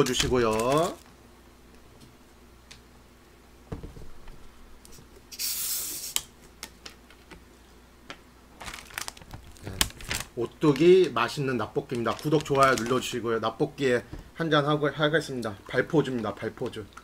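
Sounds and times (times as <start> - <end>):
bottle cap gas hiss: 5.3 - 6.2.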